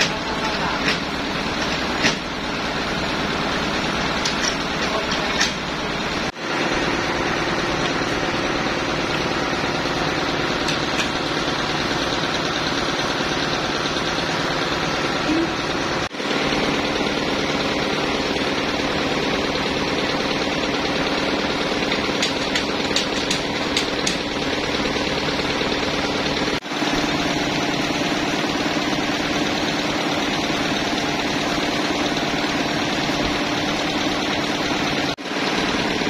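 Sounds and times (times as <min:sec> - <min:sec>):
engine running steadily: 0:00.0 - 0:36.0.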